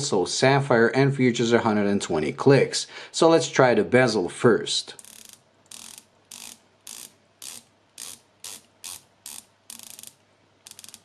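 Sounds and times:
watch bezel clicking: 5.0 - 11.0.

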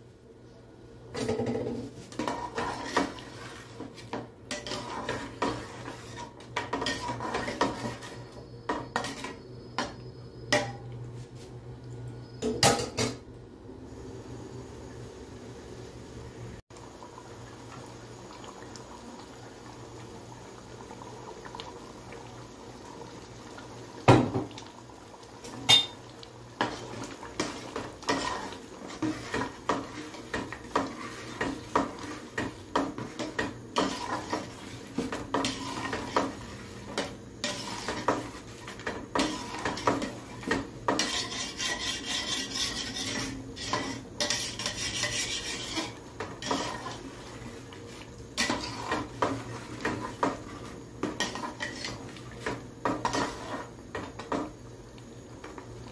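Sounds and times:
spatula scraping metal pot: 2.1 - 9.4, 26.6 - 47.1, 48.4 - 52.1, 52.8 - 53.7.

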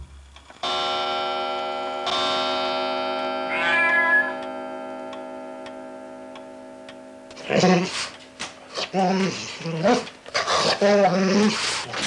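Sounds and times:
sustained electronic chord: 0.6 - 8.5
cat meowing: 3.5 - 4.4
faint clock-like ticking: 4.4 - 7.4.

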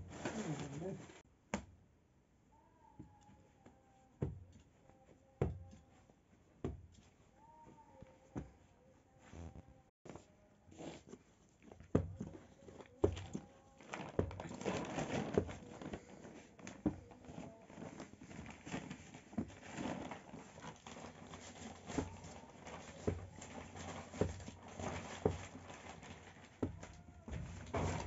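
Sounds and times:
soft thumps of kneading dough: 2.9 - 14.5.

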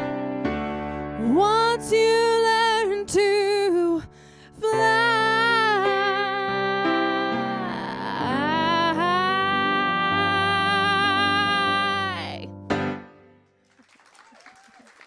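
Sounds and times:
piano chords: 0.0 - 13.6
woman singing with vibrato: 1.2 - 12.5.

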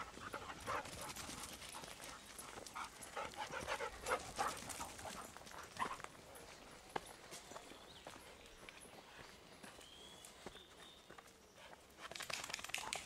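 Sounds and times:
dog panting: 0.0 - 6.0.

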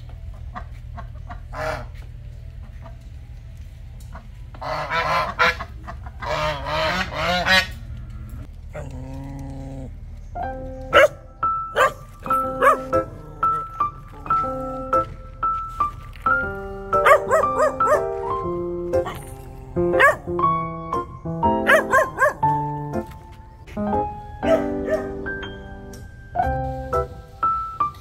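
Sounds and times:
geese honking: 4.2 - 7.9.

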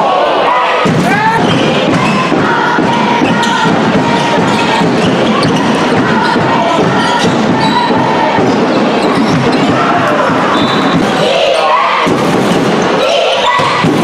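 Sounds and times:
crowd noise and voices: 0.0 - 14.0
shoes squeaking: 1.2 - 11.2.

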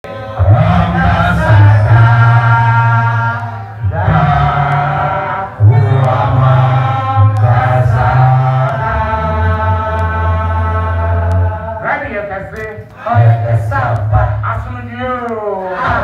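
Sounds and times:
voices singing a chant: 0.1 - 12.0, 12.8 - 16.0.

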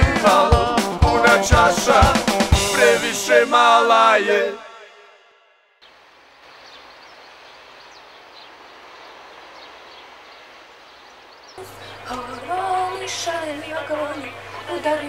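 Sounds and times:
music: 0.0 - 4.2
faint bird chirps: 5.8 - 14.9
steady background hiss: 5.8 - 15.0.

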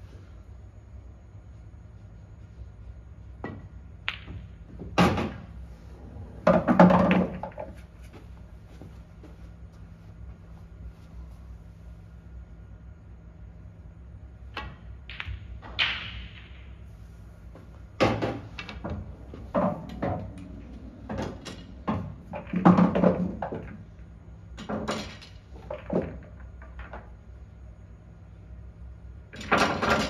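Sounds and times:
pool balls clicking: 3.4 - 5.6, 6.4 - 7.8, 14.5 - 16.8, 18.0 - 27.4
pool balls clattering in tray: 6.4 - 7.8, 18.0 - 23.9, 24.6 - 27.2.

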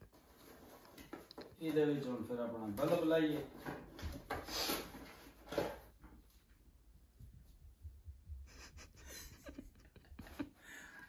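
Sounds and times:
cardboard packaging rustling: 0.0 - 6.0.

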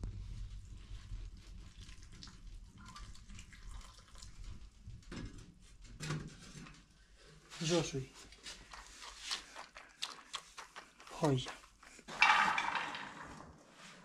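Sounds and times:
water pouring into bowl: 1.6 - 4.8.

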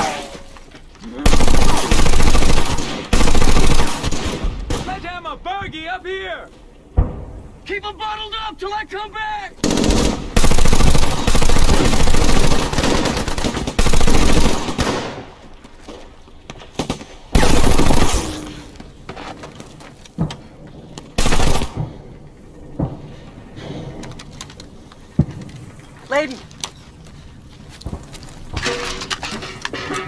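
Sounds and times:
rapid gunfire: 1.3 - 4.9, 9.6 - 15.2, 17.4 - 18.3, 21.2 - 21.8
man yelling: 4.9 - 6.5, 7.6 - 9.6.

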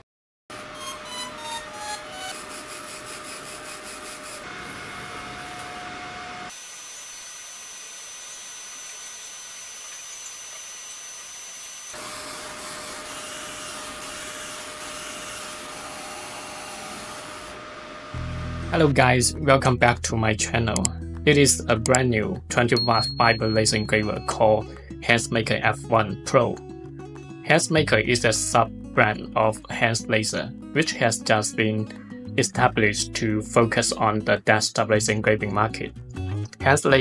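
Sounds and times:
laser head whining and buzzing: 0.8 - 18.3.

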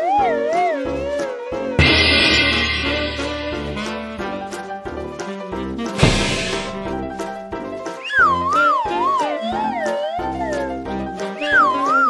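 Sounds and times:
loud music chord: 1.8 - 4.6
instrumental notes: 1.8 - 4.8.

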